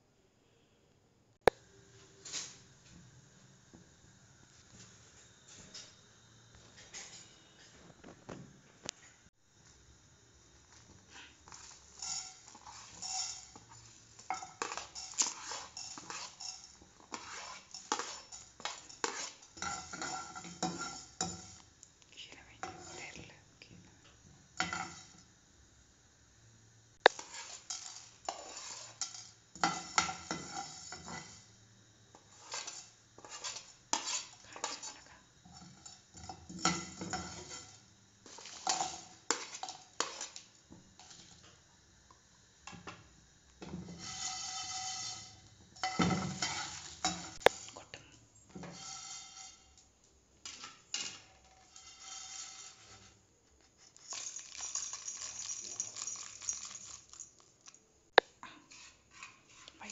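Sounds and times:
spatula scraping spices in pan: 0:10.7 - 0:21.8, 0:22.6 - 0:23.2, 0:24.6 - 0:25.2, 0:27.1 - 0:41.6, 0:43.6 - 0:55.2, 0:58.6 - 0:59.9.

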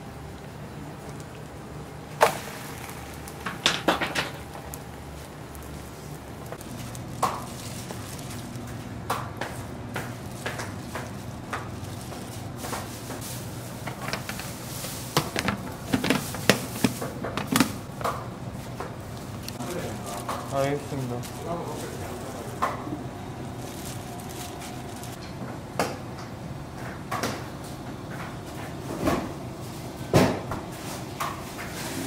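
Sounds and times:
steady low hum: 0:00.0 - 0:31.2
utensils and containers clattering: 0:03.4 - 0:04.6, 0:10.0 - 0:18.0.

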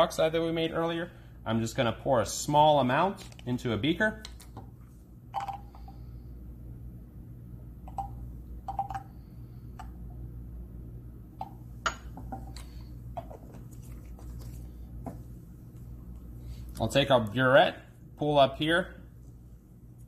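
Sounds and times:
low room hum: 0:00.0 - 0:20.0
glass beaker tapping: 0:07.9 - 0:09.1.

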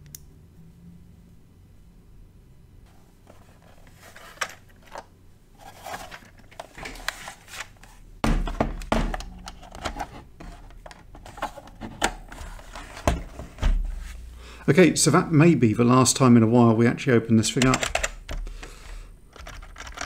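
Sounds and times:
thump on wooden desk: 0:08.2 - 0:09.2
plastic case knocks and scrapes: 0:08.2 - 0:13.9.

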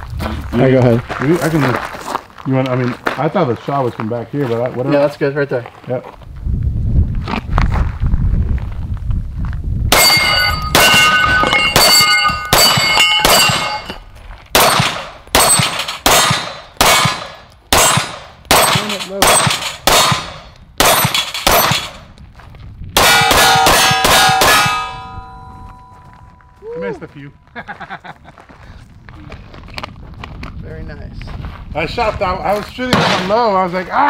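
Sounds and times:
pistol shots: 0:09.9 - 0:13.9, 0:14.6 - 0:22.1, 0:23.0 - 0:25.3, 0:32.9 - 0:33.3
steel targets ringing: 0:09.9 - 0:14.0, 0:14.6 - 0:17.1, 0:17.8 - 0:22.0, 0:23.0 - 0:26.4.

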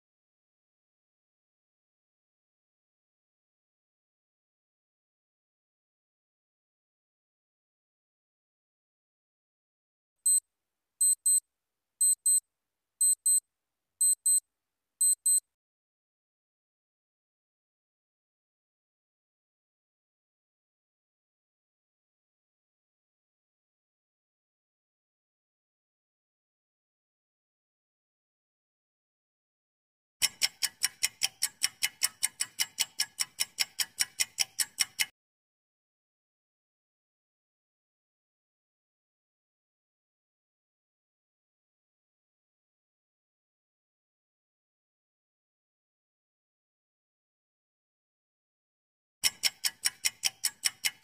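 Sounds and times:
countdown timer ticking: 0:11.0 - 0:11.4, 0:12.0 - 0:12.4, 0:13.0 - 0:13.4, 0:14.0 - 0:14.4, 0:15.0 - 0:15.4
high electronic timer ticks: 0:11.0 - 0:11.4, 0:12.0 - 0:12.4, 0:13.0 - 0:13.4, 0:14.0 - 0:14.4, 0:15.0 - 0:15.4, 0:30.2 - 0:35.1, 0:49.2 - 0:51.0.

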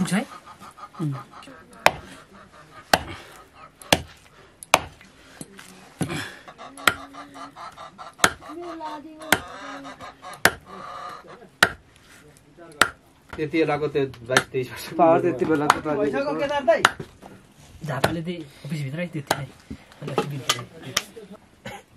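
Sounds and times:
knife chopping on a board: 0:01.8 - 0:02.1, 0:03.9 - 0:05.0, 0:08.2 - 0:08.4, 0:11.6 - 0:11.8.

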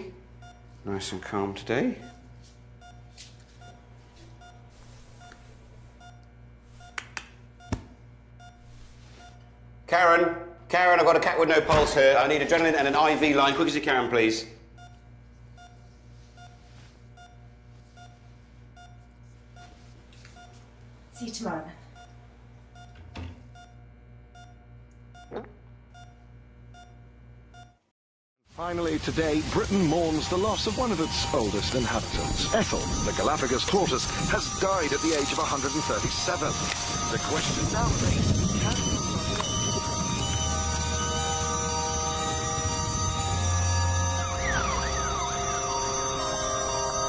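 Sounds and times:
electronic monitor beeping: 0:00.0 - 0:09.6, 0:12.4 - 0:20.6, 0:21.2 - 0:27.8, 0:29.0 - 0:47.0.

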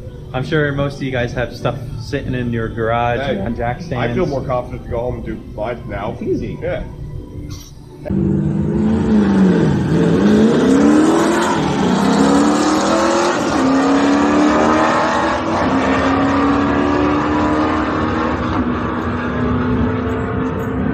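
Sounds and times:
car engine at full throttle: 0:08.1 - 0:20.9.

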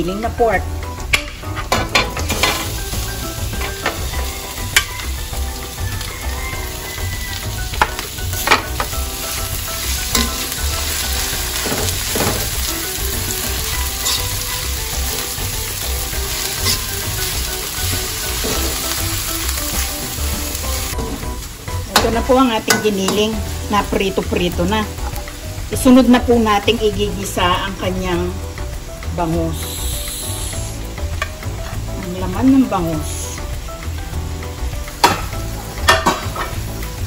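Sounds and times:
meat sizzling in oil: 0:00.2 - 0:37.0
metal spoon scraping pan: 0:14.0 - 0:14.3, 0:16.5 - 0:17.0.

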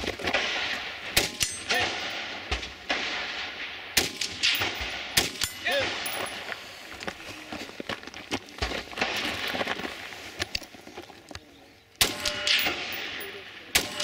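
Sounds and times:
sharp crack: 0:00.0 - 0:06.1
rifle shot: 0:00.0 - 0:06.2, 0:09.0 - 0:09.7, 0:12.0 - 0:14.0.

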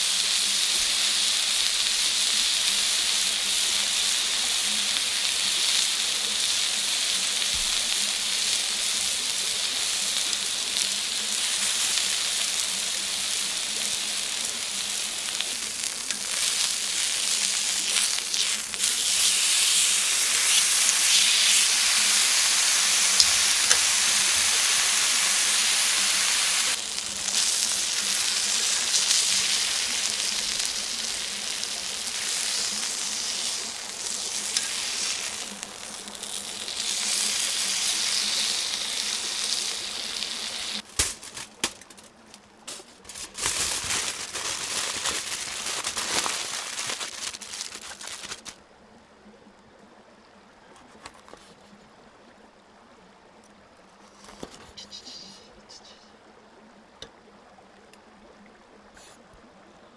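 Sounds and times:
steak sizzling on a griddle: 0:00.0 - 0:40.8
foil crinkling: 0:11.3 - 0:48.6.

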